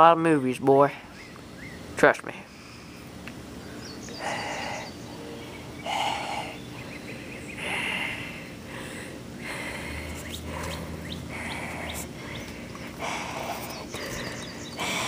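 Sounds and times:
person breathing heavily: 2.4 - 5.0, 5.8 - 15.0
faint bird chirps: 3.6 - 7.8.

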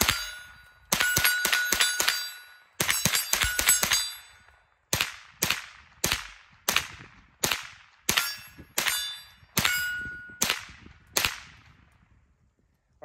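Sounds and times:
bullets ringing on steel targets: 0.0 - 4.6, 7.4 - 10.7
rifle shots: 0.0 - 11.8.

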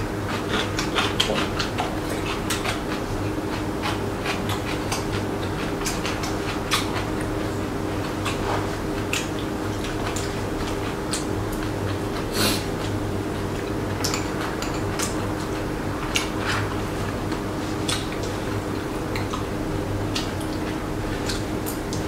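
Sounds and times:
chewing and slurping: 0.1 - 22.0
chopsticks clicking against bowls: 9.0 - 11.7, 13.9 - 16.4, 19.1 - 19.5, 21.2 - 22.0.

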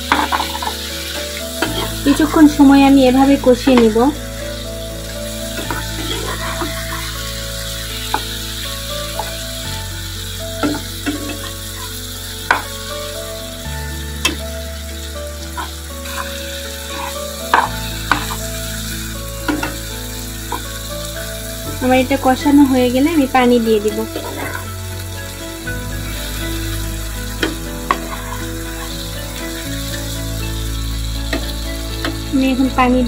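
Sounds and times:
metal spatula scraping a pan: 0.0 - 9.4, 10.6 - 12.7, 15.5 - 18.7, 23.9 - 24.8, 27.3 - 29.0
chicken sizzling in a pan: 0.0 - 33.0.

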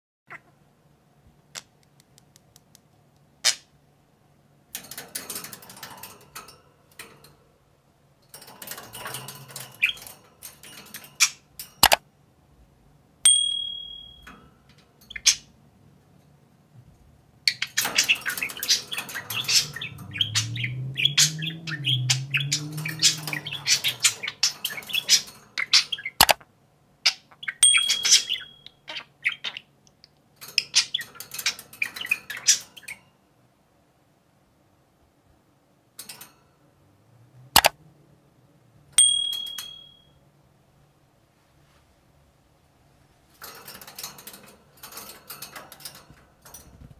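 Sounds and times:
sharp clicks: 11.8 - 12.0, 26.2 - 26.4, 37.6 - 37.8
budgerigars chattering: 17.5 - 26.3, 27.1 - 29.7.

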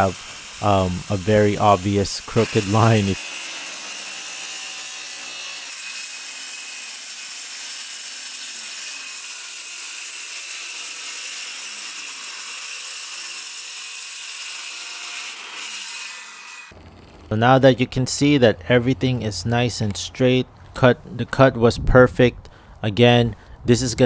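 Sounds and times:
circular saw cutting: 0.0 - 18.3.

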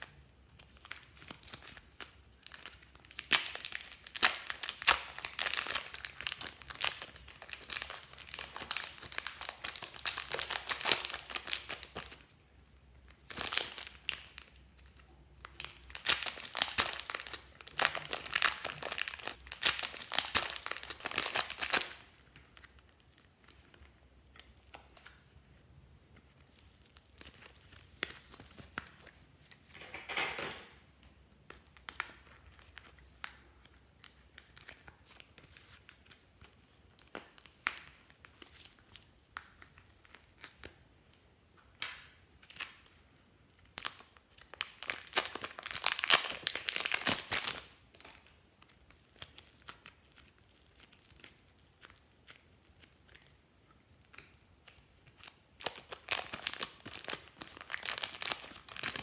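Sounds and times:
plastic bags crinkling: 0.7 - 12.2, 13.2 - 23.8, 43.8 - 59.0.

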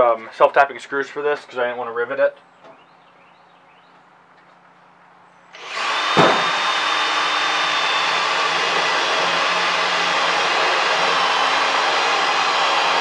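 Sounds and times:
cordless drill driving screw into metal: 5.6 - 13.0.

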